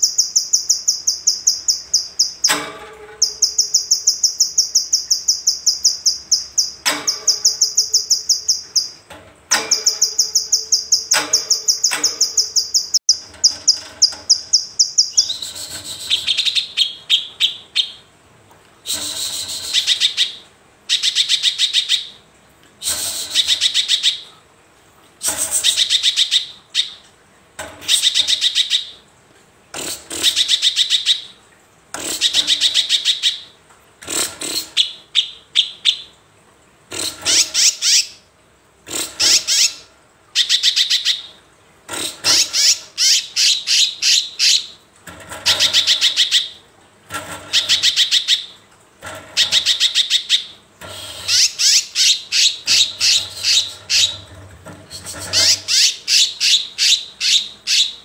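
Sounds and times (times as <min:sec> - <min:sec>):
bird trilling song: 0:00.0 - 0:02.6, 0:03.2 - 0:18.0, 0:51.3 - 0:54.2, 0:54.9 - 0:58.0.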